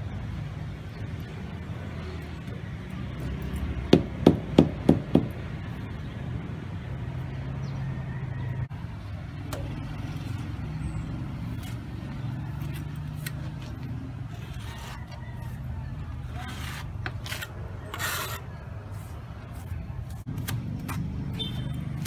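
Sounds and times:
rubber mallet knocking concrete block: 0:03.9 - 0:05.3.

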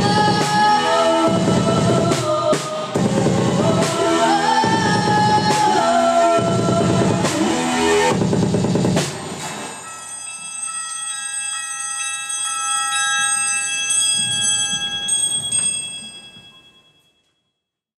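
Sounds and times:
bell-like ringing tones: 0:09.7 - 0:17.7.

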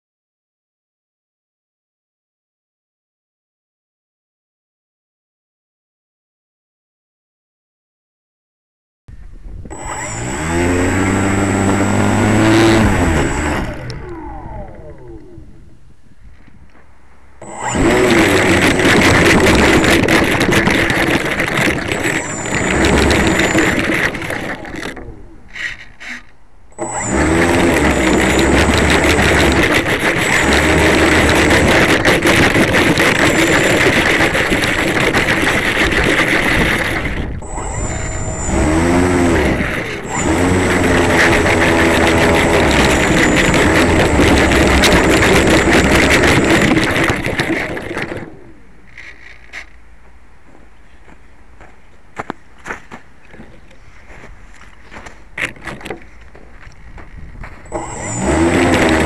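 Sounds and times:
model plane motor and propeller: 0:09.6 - 0:15.7, 0:17.4 - 0:49.8, 0:54.5 - 0:59.0.

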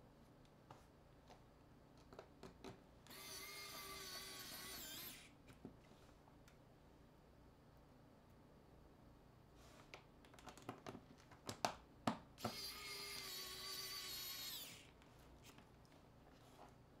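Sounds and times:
electric screwdriver whirring: 0:03.1 - 0:05.3, 0:12.4 - 0:14.9.

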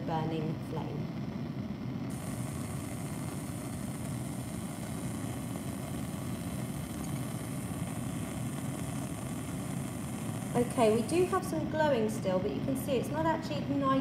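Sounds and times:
bunsen burner flame rushing: 0:00.0 - 0:14.0.

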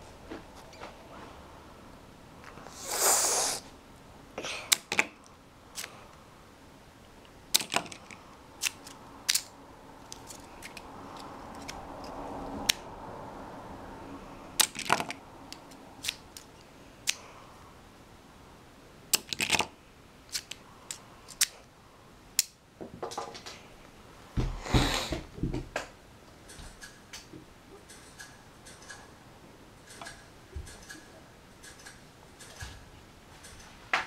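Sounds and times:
loud hiss: 0:02.7 - 0:03.7
plastic figures clicking and tapping: 0:07.5 - 0:09.5.

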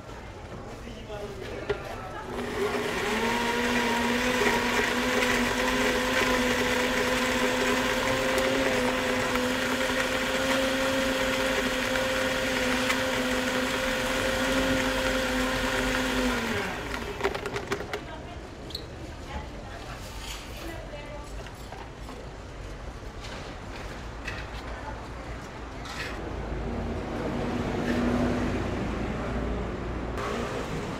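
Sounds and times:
blender crushing ice: 0:02.4 - 0:17.9.

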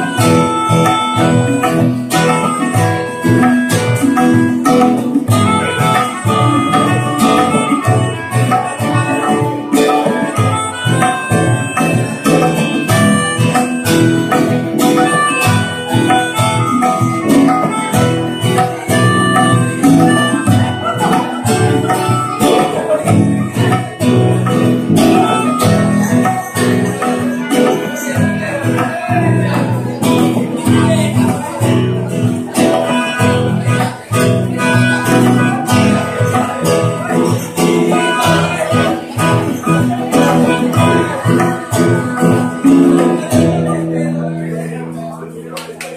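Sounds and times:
guitars strummed: 0:00.0 - 0:45.9
man singing into a microphone: 0:32.9 - 0:45.1.

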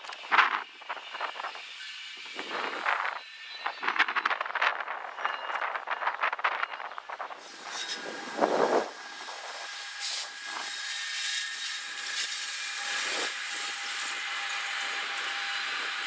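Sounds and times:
thin steady whine: 0:00.0 - 0:14.2
train wheels hissing on rail: 0:07.3 - 0:16.0.

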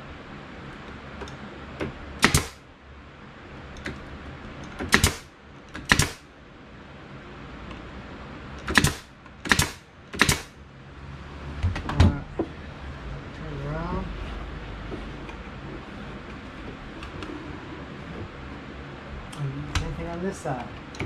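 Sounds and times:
nail gun firing: 0:02.2 - 0:02.6, 0:04.8 - 0:06.3, 0:08.6 - 0:10.6.

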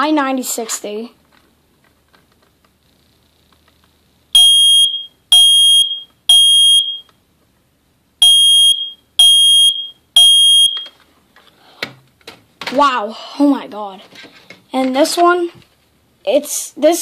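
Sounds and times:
smoke alarm beeping: 0:04.4 - 0:07.1, 0:08.2 - 0:10.9.

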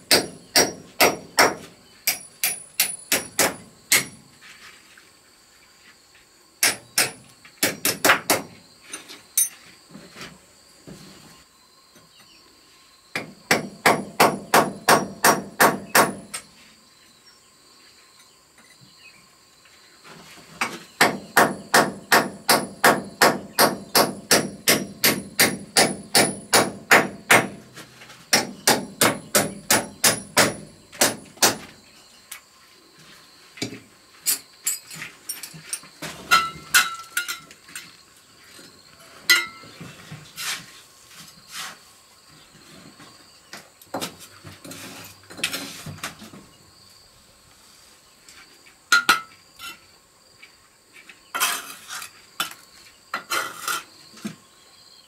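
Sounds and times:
hand hammer striking: 0:00.1 - 0:04.2, 0:21.0 - 0:27.5.

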